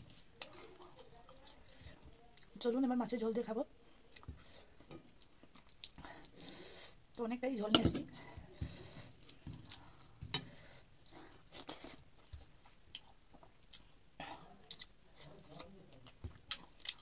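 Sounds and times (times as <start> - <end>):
chewing: 0.2 - 2.6, 4.0 - 6.4, 11.0 - 17.0.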